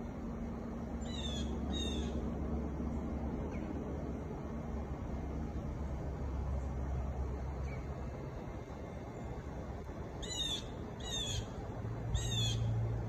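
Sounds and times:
steady low rumble: 0.0 - 13.0
bird calling: 1.0 - 2.2, 10.2 - 12.8.

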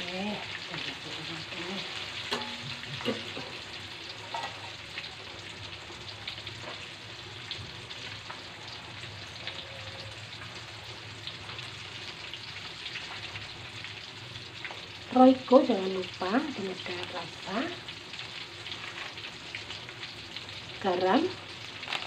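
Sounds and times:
chicken deep-frying sizzle: 0.0 - 22.0
metal tongs clicking on wok: 2.3 - 3.2.

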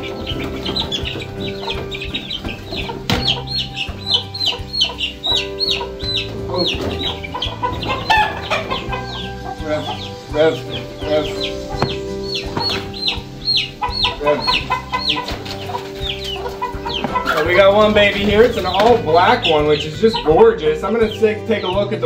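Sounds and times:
lower bird calls: 0.0 - 21.8
young birds peeping: 0.0 - 22.0.

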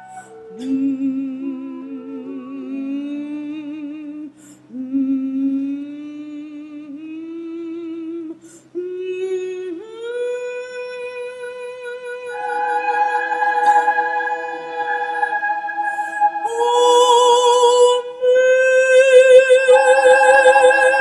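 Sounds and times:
soprano voice humming: 0.0 - 5.6
faint musical accompaniment: 10.8 - 21.0
full chord: 12.1 - 17.9.

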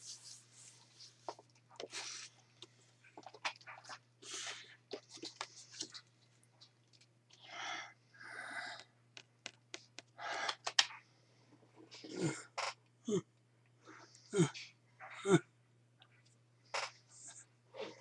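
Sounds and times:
soft handling clicks and rustles: 0.0 - 4.1, 4.9 - 7.5.

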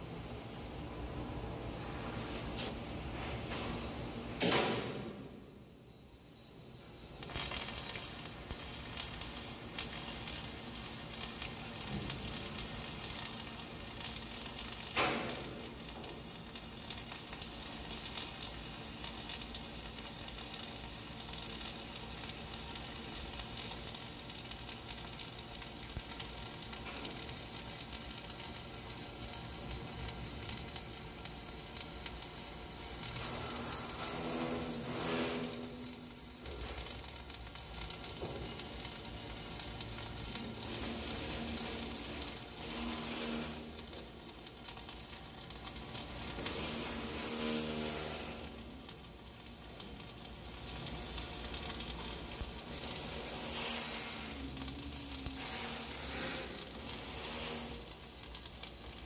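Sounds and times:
welding arc crackling: 0.0 - 59.0.

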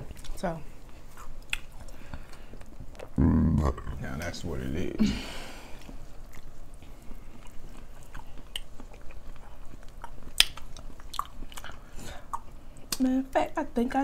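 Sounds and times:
people chewing: 0.0 - 4.5, 5.5 - 13.1
mouth clicks and smacks: 1.2 - 2.0, 5.8 - 13.1.

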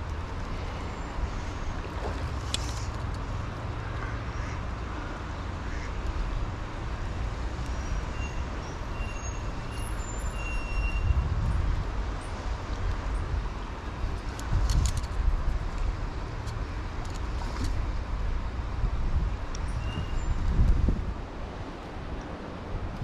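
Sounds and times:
rippling river: 0.0 - 11.0, 11.6 - 23.0
wind rumbling on microphone: 0.0 - 23.0
faint high whistles: 8.1 - 11.2.

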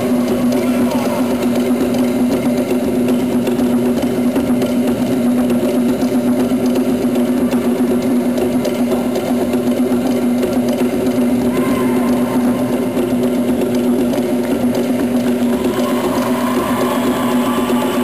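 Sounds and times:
rapid drumming on log drums: 0.0 - 18.0.

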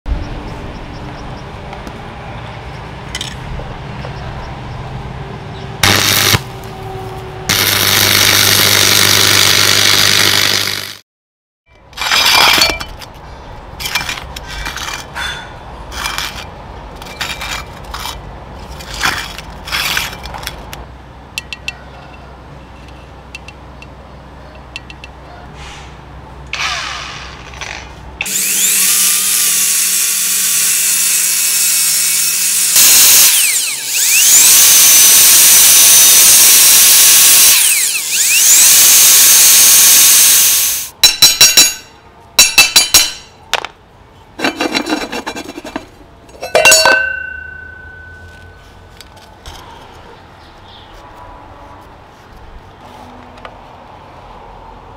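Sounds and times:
cut-off disc grinding steel: 5.8 - 6.9, 7.5 - 11.0, 26.5 - 43.4, 44.4 - 48.6
metal clanks: 11.9 - 13.2, 41.0 - 43.8, 44.4 - 49.1.

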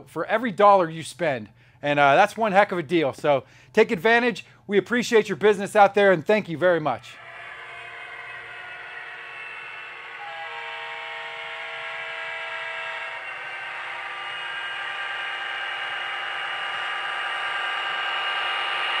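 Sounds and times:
model locomotive engine whine: 7.0 - 19.0
locomotive horn chord: 7.2 - 15.3.

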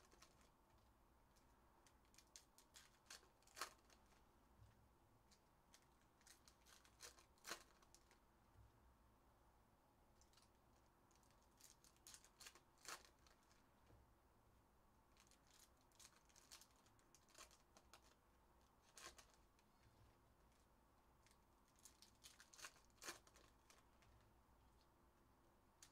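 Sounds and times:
foil wrappers crinkling and tearing: 2.0 - 4.2, 5.7 - 8.2, 11.2 - 13.6, 15.2 - 18.2, 18.8 - 19.4, 21.2 - 24.1.

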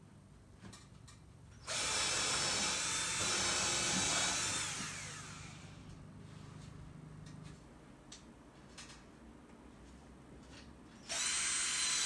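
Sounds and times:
cordless drill boring into wood: 1.7 - 5.6, 11.1 - 12.0.

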